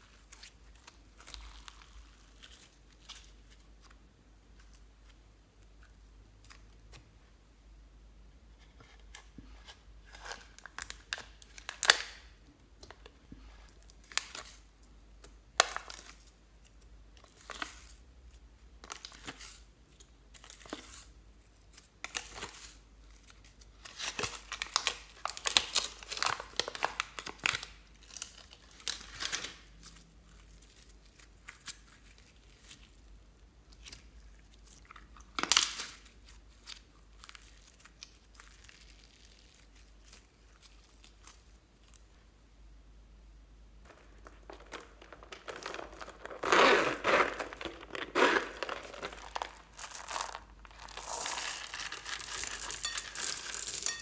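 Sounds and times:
slime crackling and tearing: 0:00.0 - 0:03.4, 0:10.2 - 0:12.3, 0:23.4 - 0:33.1, 0:33.7 - 0:42.0, 0:43.9 - 0:54.0
plastic tray crinkling: 0:43.9 - 0:54.0.

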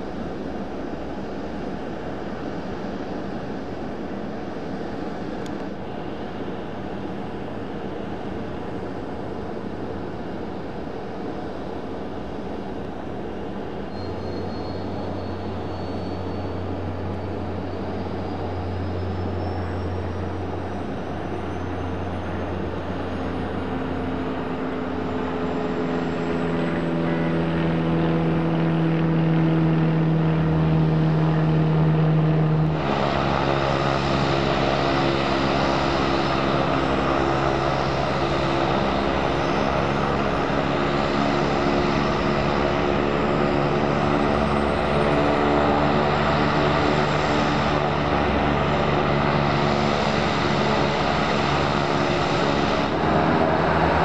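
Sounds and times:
turboprop engines running: 0:00.0 - 0:54.0
turbine whine rising in pitch: 0:15.4 - 0:54.0.

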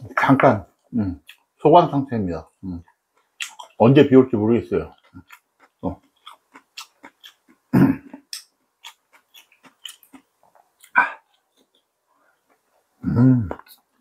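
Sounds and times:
person chewing: 0:02.7 - 0:03.9, 0:04.8 - 0:14.0.

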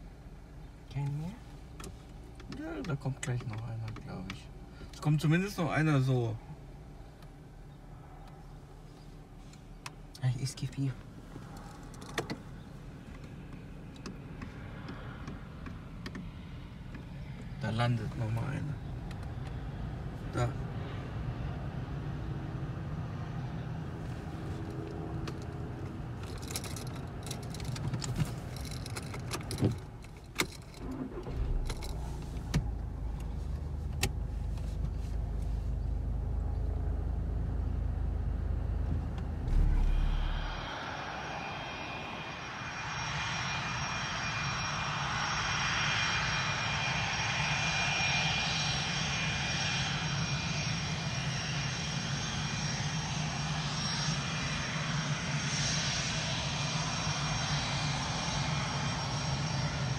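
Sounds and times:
jet engines hissing and whistling: 0:11.1 - 0:33.5, 0:39.4 - 0:59.9
car engine idling: 0:23.9 - 0:36.7, 0:37.7 - 0:45.8
heavy thump: 0:39.4 - 0:41.3.

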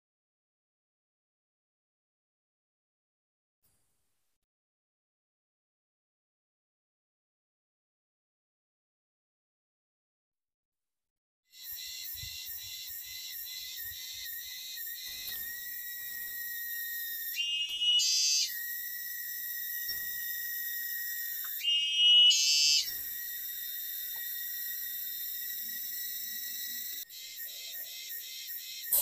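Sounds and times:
insects buzzing: 0:11.5 - 0:29.0
shrill insect calls: 0:11.5 - 0:29.0.

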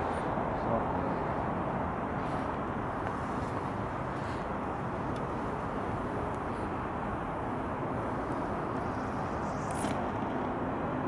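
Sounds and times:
distant city traffic hum: 0:00.0 - 0:11.0
faint rustle: 0:02.1 - 0:06.9.

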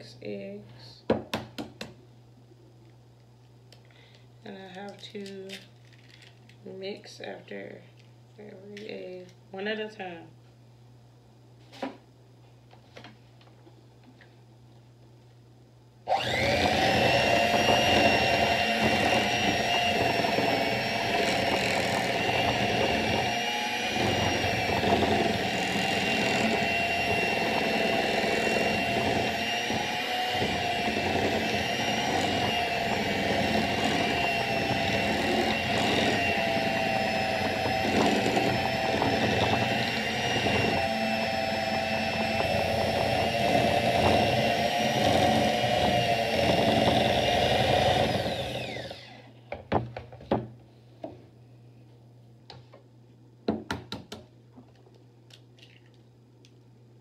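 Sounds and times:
electric hand mixer whining: 0:16.1 - 0:49.4.

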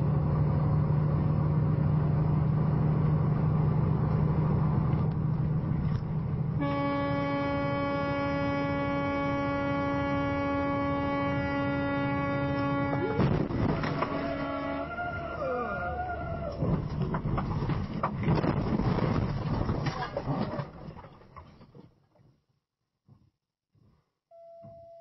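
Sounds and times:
diesel engine drone: 0:00.0 - 0:17.2
road noise: 0:00.0 - 0:20.1
truck horn held tone: 0:06.6 - 0:15.0.

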